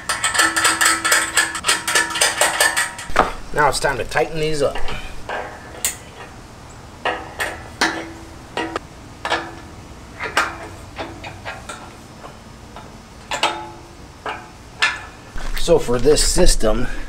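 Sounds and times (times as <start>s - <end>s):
wrench clinking on metal: 0.0s - 3.2s.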